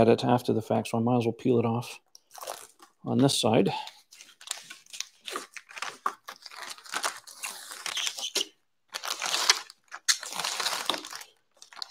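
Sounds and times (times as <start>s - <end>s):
plastic film peeling and crackling: 2.2s - 3.0s, 3.9s - 11.9s.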